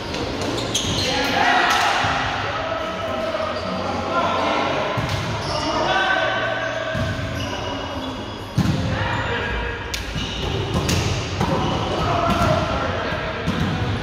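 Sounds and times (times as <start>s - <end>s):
players' voices and chatter: 0.0s - 14.0s
volleyball strikes and bounces: 9.9s - 12.6s.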